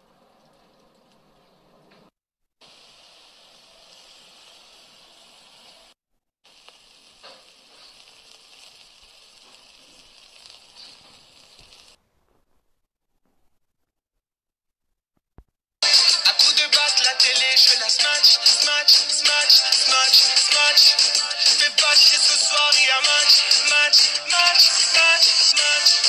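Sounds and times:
meat sizzling on a grill: 0:02.6 - 0:12.0.

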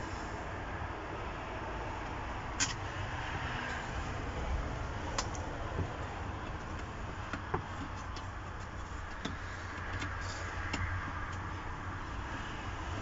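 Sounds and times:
clicks and taps of parts handled: 0:05.1 - 0:11.5.

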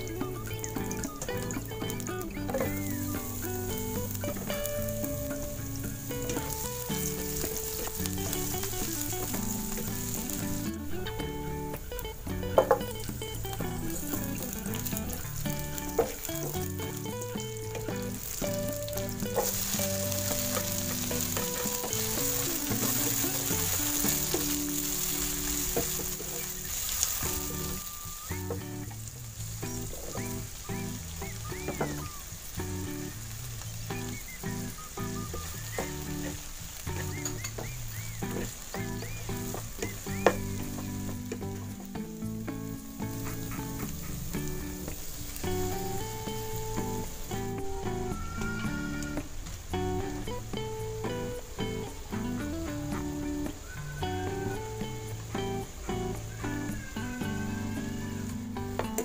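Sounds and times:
background music: 0:00.0 - 0:59.0
oil sizzling in a frying pan: 0:00.0 - 0:59.0.

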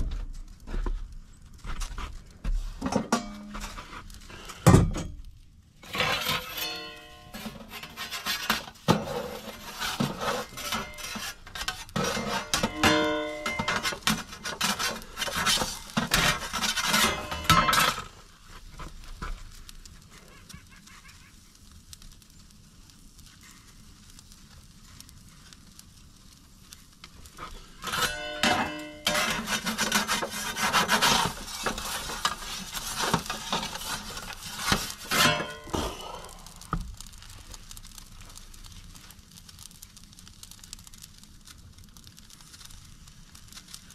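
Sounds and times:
metal peel scraping on stone: 0:05.8 - 0:18.1, 0:27.3 - 0:36.4.

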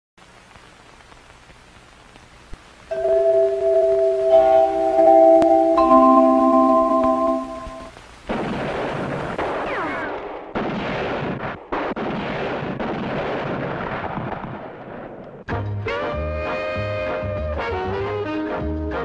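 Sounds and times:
falling whine: 0:02.9 - 0:08.0
gunshots with rumble: 0:08.3 - 0:15.4.

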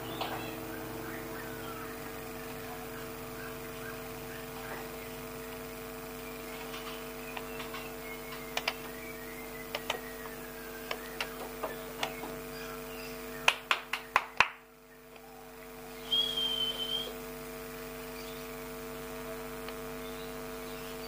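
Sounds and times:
steady low hum: 0:00.0 - 0:21.0
bird sharp clicking notes: 0:06.5 - 0:12.5, 0:13.4 - 0:15.3.

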